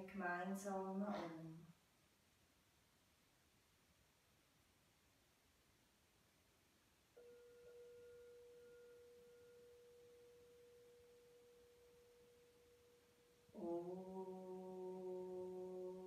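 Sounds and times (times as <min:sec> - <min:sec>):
woman chanting: 0:00.0 - 0:01.7, 0:13.5 - 0:16.0
singing bowl ringing: 0:07.1 - 0:13.7.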